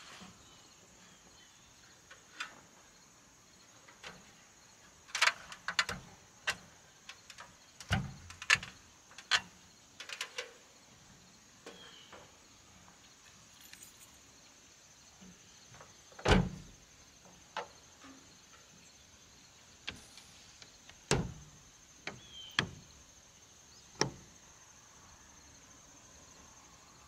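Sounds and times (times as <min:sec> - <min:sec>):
tailgate slamming shut: 0:16.2 - 0:16.8, 0:21.1 - 0:21.6.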